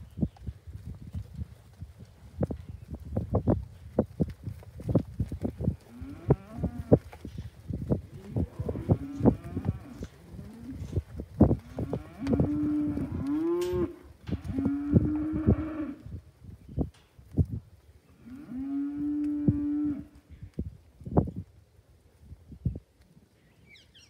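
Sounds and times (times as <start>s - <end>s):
cattle mooing: 11.8s - 16.0s.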